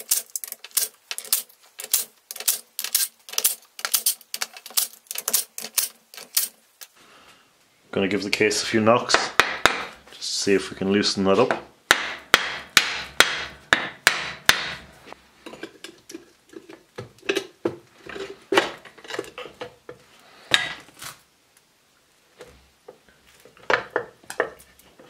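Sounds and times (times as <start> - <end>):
screwdriver scraping and prying: 0.0 - 6.6.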